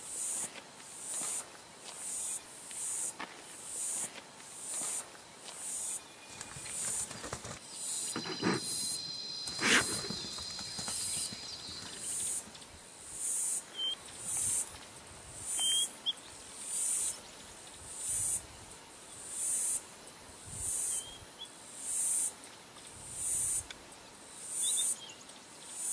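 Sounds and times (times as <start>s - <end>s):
insect calling in high pulses: 5.6s - 14.7s
bird chirps: 5.9s - 12.4s, 13.7s - 14.1s, 15.6s - 16.2s.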